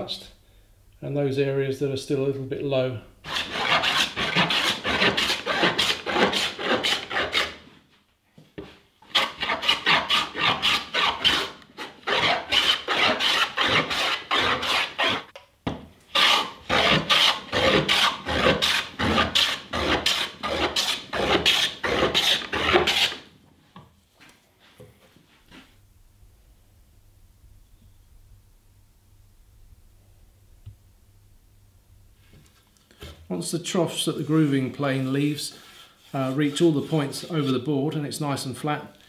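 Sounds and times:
hand plane rasping across wood: 3.3 - 7.6, 9.1 - 15.3, 16.2 - 23.2.

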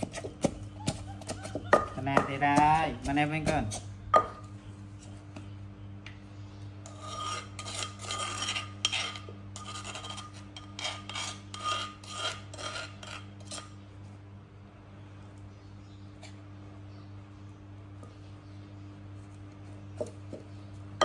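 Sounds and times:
metal spoon scraping clay mortar: 0.0 - 4.0, 6.8 - 13.8.

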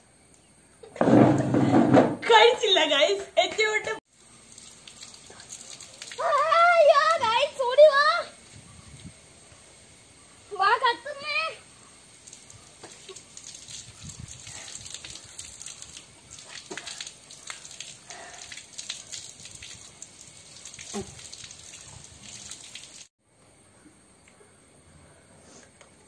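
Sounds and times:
water running from a tap: 4.1 - 8.1, 10.6 - 23.1.

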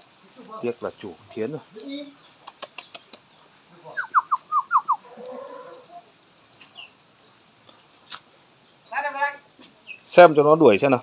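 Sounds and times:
bird whistling call: 3.9 - 6.0.

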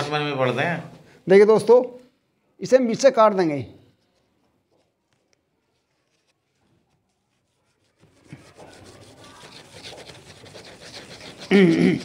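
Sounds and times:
metal blade scraping cardboard: 7.6 - 12.0.

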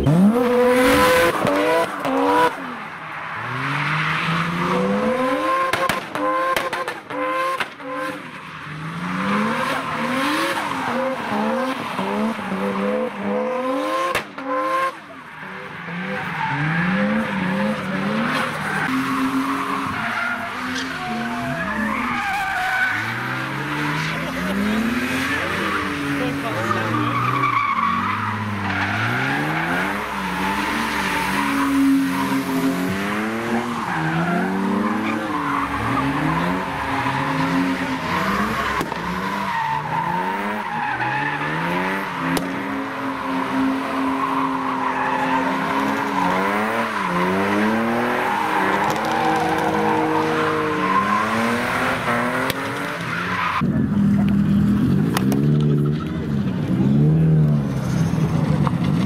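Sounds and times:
car engines revving: 0.0 - 59.0
tyres squealing on pavement: 7.8 - 54.2.

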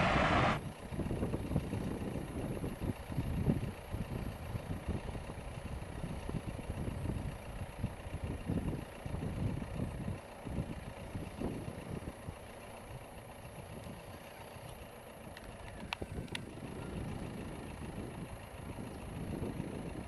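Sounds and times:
distant jet engines rumbling: 0.0 - 0.6
faint steady whine: 0.0 - 0.6.

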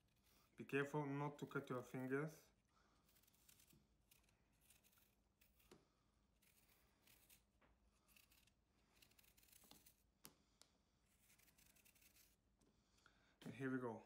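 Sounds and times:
knife scraping apple skin: 3.0 - 10.2, 11.1 - 12.6.

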